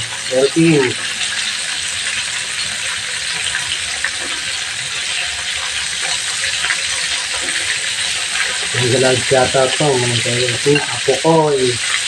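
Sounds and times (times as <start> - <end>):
chicken sizzling in oil: 0.0 - 12.0
metal tongs in a pan: 10.4 - 11.0.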